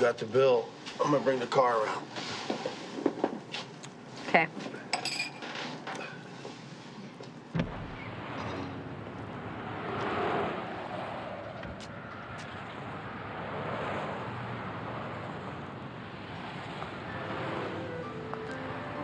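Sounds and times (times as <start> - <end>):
sharp knock: 7.6 - 8.8.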